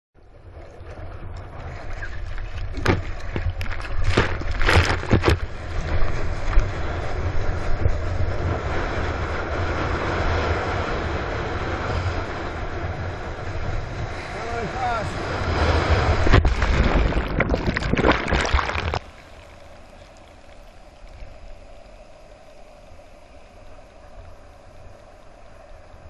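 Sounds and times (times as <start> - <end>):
wind buffeting microphone: 0.4 - 19.0
water rushing past surfboard: 0.4 - 26.0
sharp splashes or knocks: 16.1 - 19.1.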